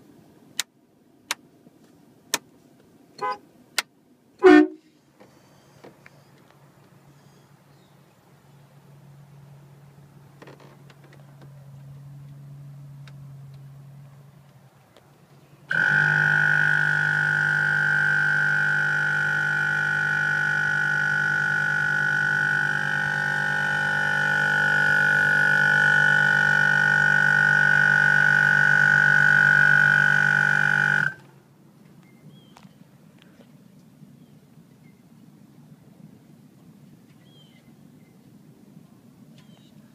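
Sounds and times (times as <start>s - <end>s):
air compressor running: 15.7s - 31.2s.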